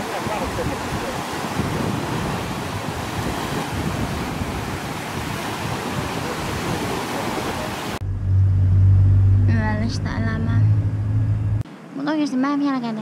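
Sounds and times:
sea waves breaking on beach: 0:00.0 - 0:08.0.

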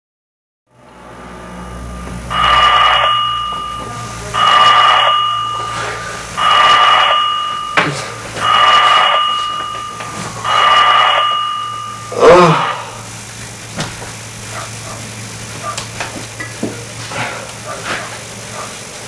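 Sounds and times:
electronic ringing tone: 0:00.7 - 0:13.0.

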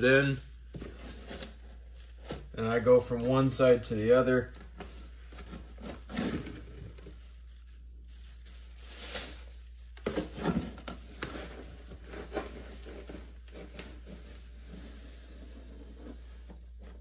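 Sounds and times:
scoop scraping through cat litter: 0:05.0 - 0:17.0.

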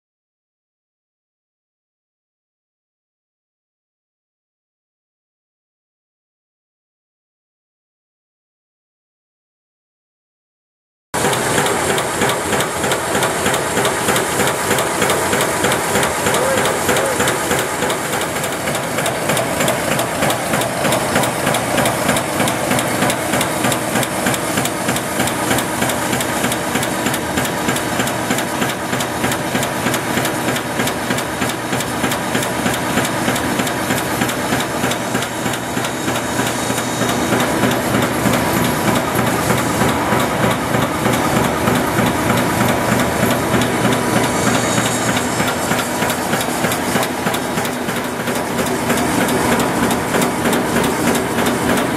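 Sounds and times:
machine clattering: 0:11.2 - 0:51.9.

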